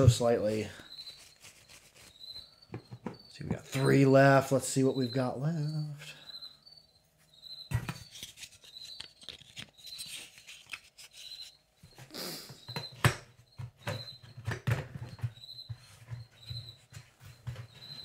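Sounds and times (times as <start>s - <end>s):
packaging rustling: 8.1s - 11.5s.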